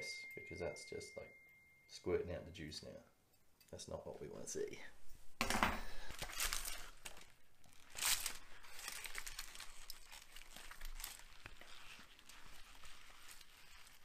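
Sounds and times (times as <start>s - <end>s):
aluminium foil crinkling: 5.8s - 14.0s.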